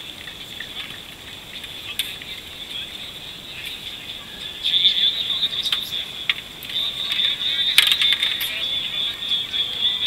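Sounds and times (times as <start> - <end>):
paddles splashing water: 0.0 - 10.0.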